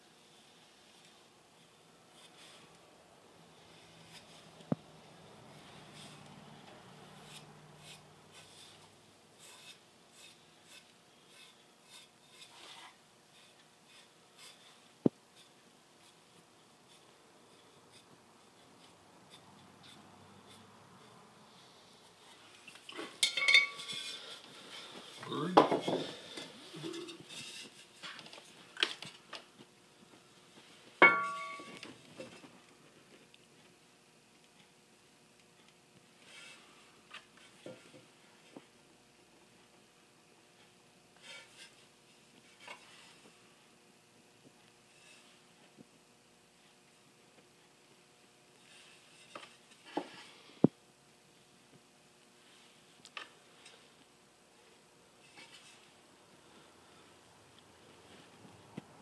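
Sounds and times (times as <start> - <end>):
paintbrush strokes: 0.2 - 2.8, 3.5 - 22.8
mug clinking with bell-like ring: 23.2 - 23.9, 31.0 - 31.8
ceramic ware knocking: 31.0 - 31.6.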